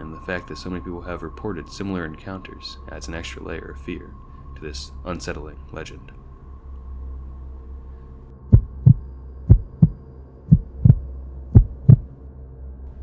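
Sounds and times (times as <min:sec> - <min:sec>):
low steady drone: 0:00.0 - 0:13.0
heartbeat double thumps: 0:08.5 - 0:12.1.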